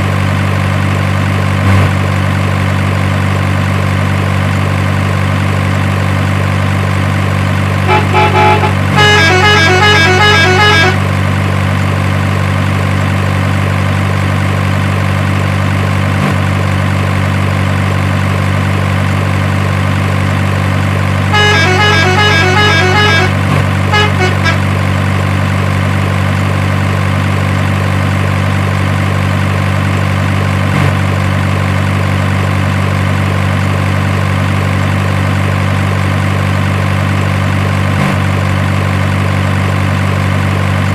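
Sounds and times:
truck engine idling: 0.0 - 40.9
multi-tone horn tune: 7.8 - 11.1, 21.3 - 24.8.

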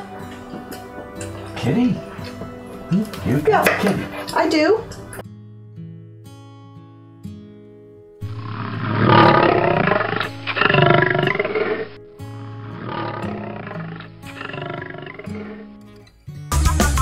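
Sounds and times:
light background music: 0.0 - 17.0
big cat roaring: 8.3 - 15.9.

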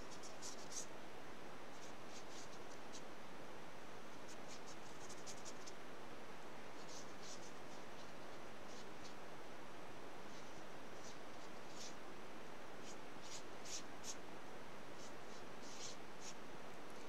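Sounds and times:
brush scratching on paper: 0.0 - 0.9, 1.7 - 3.1, 4.1 - 5.8, 6.8 - 9.2, 10.3 - 12.0, 12.8 - 14.2, 15.0 - 16.4
faint hiss: 0.0 - 17.0.

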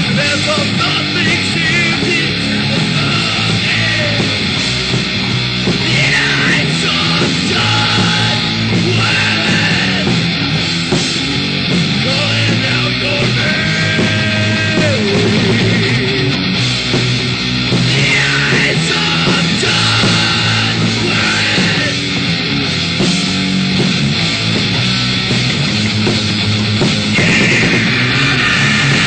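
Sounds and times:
person singing: 0.0 - 4.4, 5.8 - 10.2, 12.0 - 16.4, 17.9 - 22.1
bass: 0.0 - 29.0
distorted electric guitars: 0.0 - 29.0
drums: 0.0 - 29.0.

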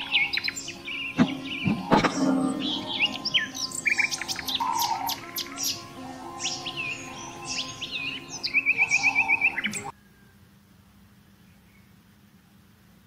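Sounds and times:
birds chirping and whistling: 0.0 - 9.9.

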